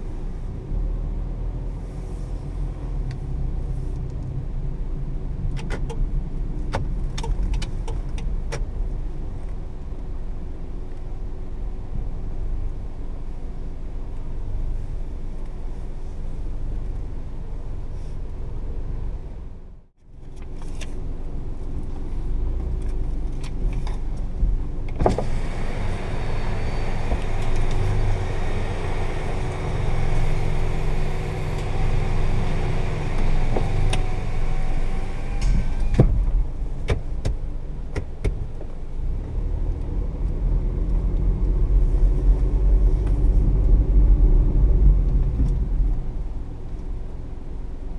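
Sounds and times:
outside noise through car window: 0:00.0 - 0:47.9
car engine running: 0:01.7 - 0:47.9.

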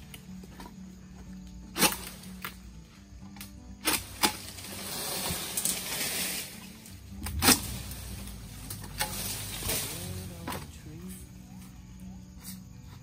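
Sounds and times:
rustling fronds: 0:01.7 - 0:12.0
sharp knocks of falling fruit: 0:03.4 - 0:06.6, 0:07.2 - 0:08.1.

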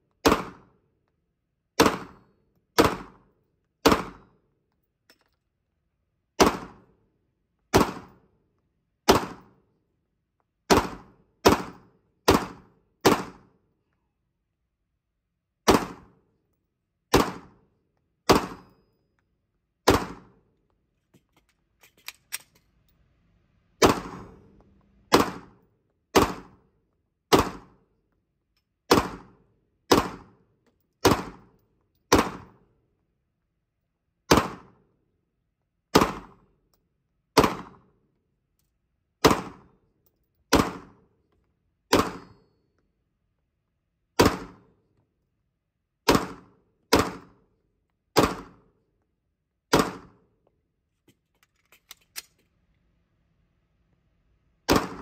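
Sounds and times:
pistol shots ringing indoors: 0:01.8 - 0:04.4, 0:18.2 - 0:18.9, 0:23.8 - 0:24.5, 0:41.9 - 0:42.8, 0:54.7 - 0:55.0
magazine change clicks: 0:21.3 - 0:22.7, 0:51.2 - 0:52.5.

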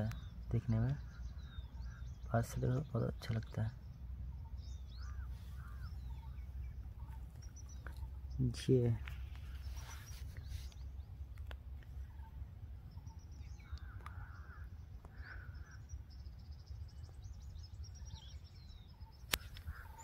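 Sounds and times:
distant birds calling: 0:00.0 - 0:20.0
steady low rumble: 0:00.0 - 0:20.0
short harsh bird calls: 0:04.4 - 0:08.3, 0:13.0 - 0:16.2, 0:18.1 - 0:20.0
sharp click: 0:19.2 - 0:19.8.

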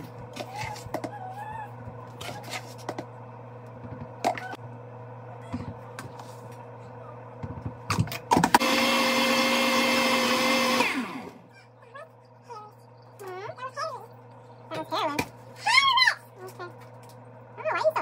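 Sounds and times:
blender running: 0:08.3 - 0:11.5.

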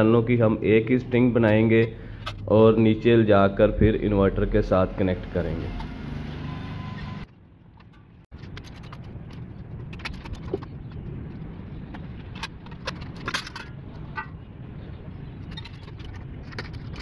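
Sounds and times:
low outdoor rumble: 0:07.2 - 0:17.0.

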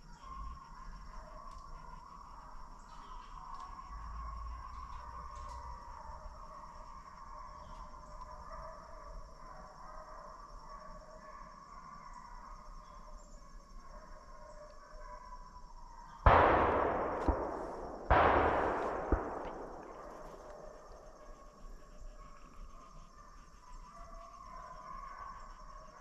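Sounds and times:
gunshots with echo: 0:16.3 - 0:21.4.

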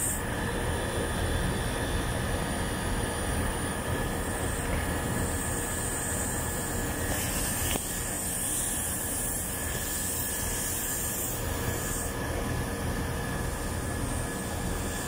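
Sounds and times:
air conditioner outdoor unit running: 0:00.0 - 0:15.0
refrigerant hiss: 0:04.2 - 0:15.0.

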